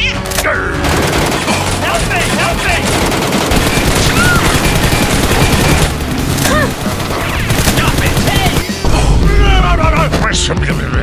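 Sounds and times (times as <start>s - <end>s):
rapid gunfire: 0.8s - 8.8s.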